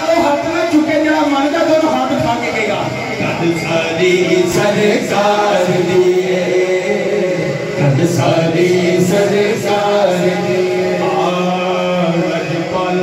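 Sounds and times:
man singing unaccompanied: 3.5 - 13.0.

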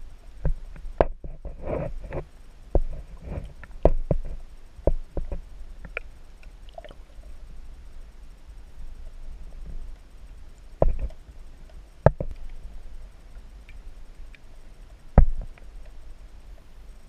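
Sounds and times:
faint ticks: 0.0 - 17.0
underwater rumble of water: 0.0 - 17.0.

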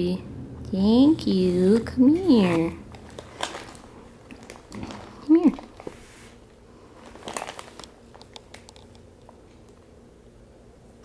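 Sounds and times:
cat crunching a treat: 2.9 - 6.0, 6.9 - 9.4.

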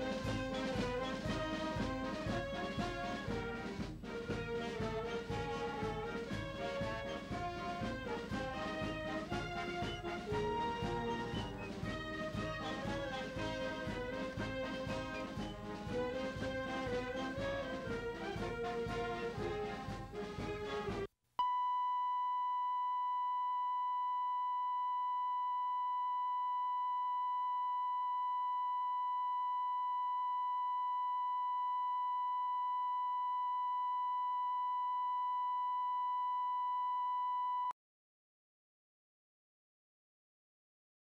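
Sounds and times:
brass band playing: 0.0 - 21.1.

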